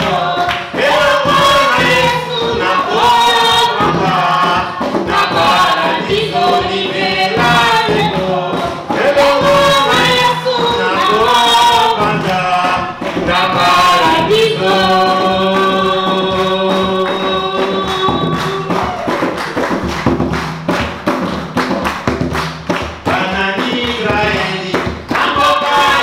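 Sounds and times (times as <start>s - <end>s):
choir singing gospel song: 0.0s - 20.2s, 23.0s - 26.0s
drum beats: 0.0s - 26.0s.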